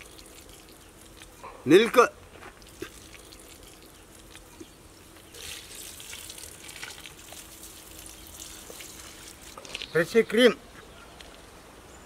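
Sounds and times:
milk pouring in a thin stream: 0:00.0 - 0:01.4, 0:05.3 - 0:09.6.

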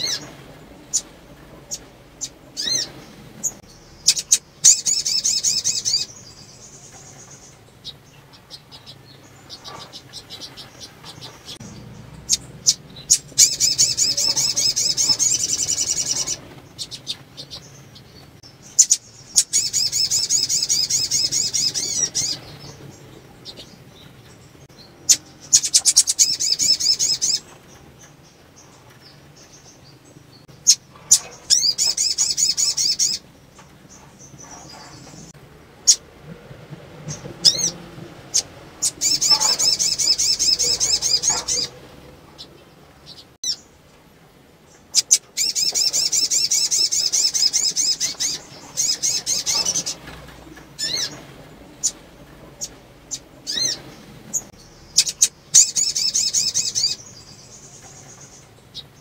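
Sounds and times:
bird high-pitched trilling: 0:00.0 - 0:00.3, 0:00.9 - 0:08.0, 0:09.5 - 0:22.8, 0:30.6 - 0:33.2, 0:37.4 - 0:41.8, 0:44.9 - 0:50.1, 0:50.8 - 0:51.2, 0:52.6 - 0:58.9.

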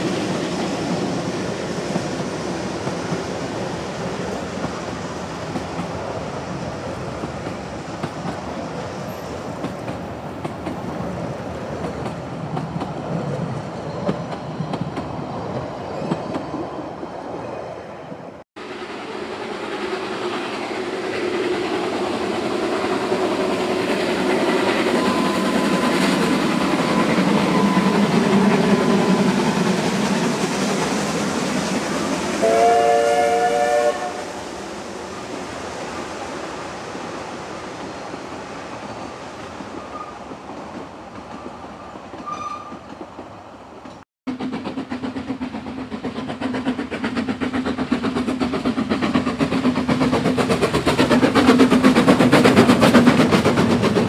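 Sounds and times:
steam locomotive: 0:00.0 - 0:54.0
steam whistle: 0:32.4 - 0:34.5
train wheels clattering: 0:37.8 - 0:54.0.

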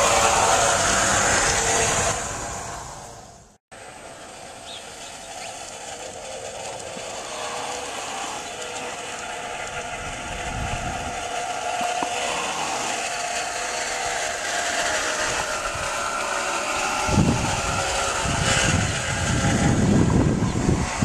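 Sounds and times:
model train motor whine: 0:00.0 - 0:21.0
wheels rolling on rails: 0:00.0 - 0:21.0
wind buffeting microphone: 0:06.9 - 0:21.0.

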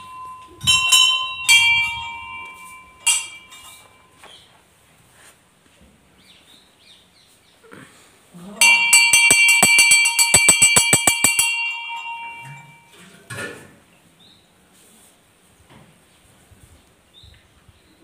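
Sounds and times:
brass bell ringing: 0:08.6 - 0:12.9.

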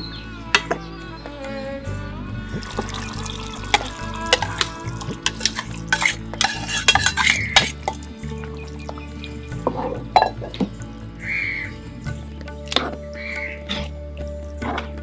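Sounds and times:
scraping plate: 0:03.7 - 0:08.0
wooden spatula stirring in pot: 0:03.7 - 0:08.0.

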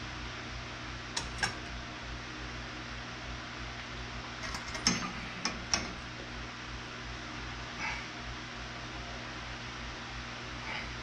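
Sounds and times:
electric fan hiss: 0:00.0 - 0:11.0
clicks and knocks of metal lamp arm: 0:01.2 - 0:01.7.

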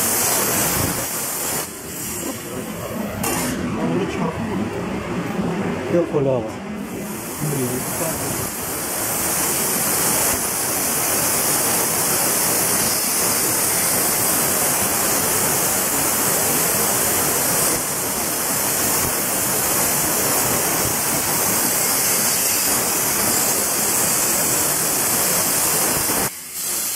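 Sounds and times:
plasma cutter hissing: 0:00.0 - 0:04.2, 0:06.8 - 0:26.9.

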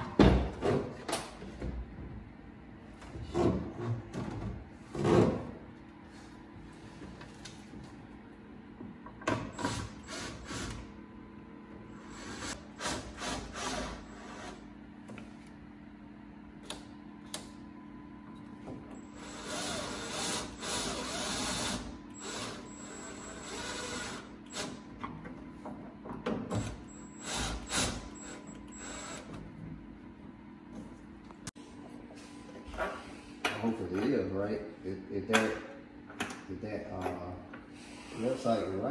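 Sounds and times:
cordless drill boring into metal: 0:19.0 - 0:24.2, 0:26.9 - 0:29.2.

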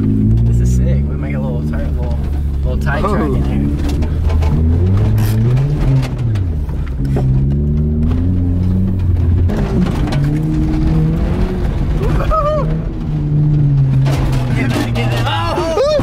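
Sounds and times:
car engine under throttle: 0:00.0 - 0:16.0
person shouting: 0:15.2 - 0:16.0.

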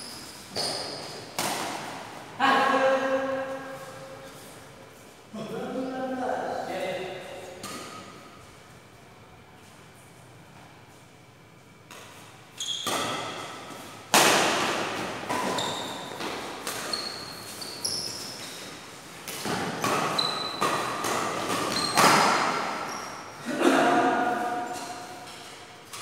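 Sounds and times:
shoes squeaking on court floor: 0:00.0 - 0:02.0, 0:11.7 - 0:14.0, 0:14.8 - 0:23.4, 0:24.0 - 0:26.0
rackets hitting shuttlecock: 0:00.5 - 0:02.0, 0:12.8 - 0:17.3, 0:19.2 - 0:22.9.

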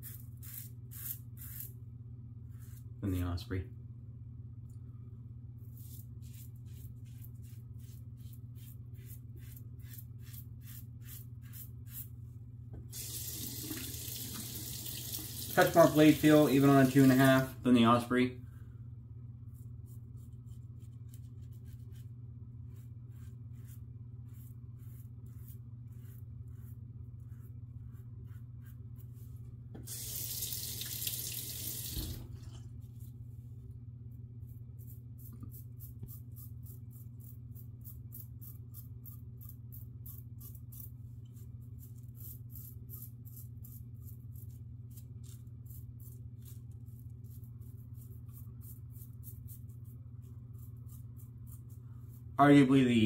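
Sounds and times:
razor scraping stubble: 0:00.0 - 0:01.8, 0:05.8 - 0:12.1
water tap running: 0:12.9 - 0:17.5, 0:29.8 - 0:32.5.

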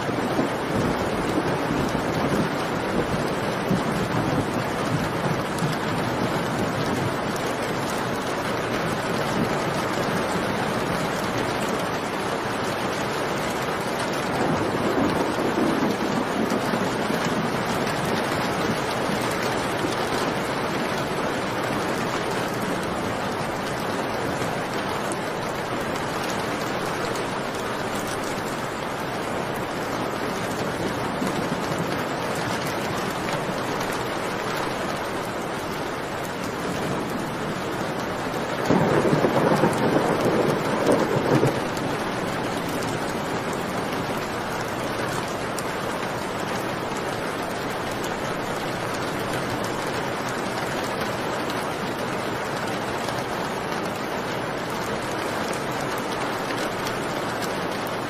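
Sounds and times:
steady rain: 0:00.0 - 0:58.0
thunder rumble: 0:13.8 - 0:21.8, 0:36.2 - 0:44.4.

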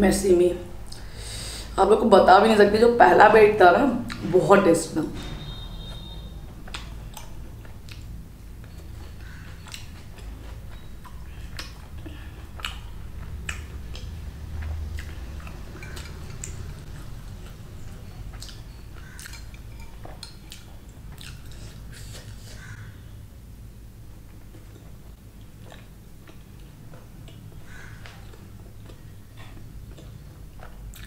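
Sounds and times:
close-miked chewing: 0:06.0 - 0:22.8, 0:24.2 - 0:31.0
wet mouth clicks and smacks: 0:11.0 - 0:16.8.

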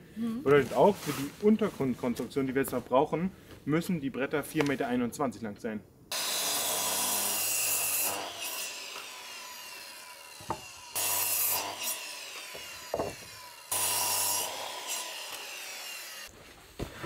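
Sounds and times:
power saw cutting wood: 0:06.1 - 0:16.3
wooden knocks: 0:10.4 - 0:10.7, 0:12.5 - 0:13.3.

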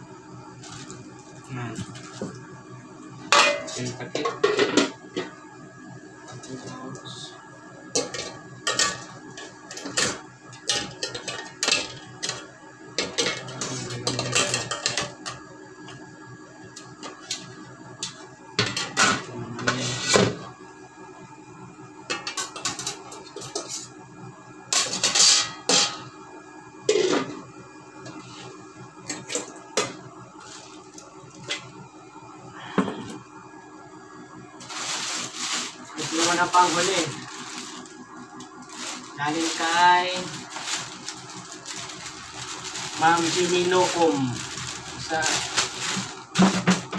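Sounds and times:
plastic pouch rustling: 0:34.6 - 0:37.9, 0:38.6 - 0:46.4.

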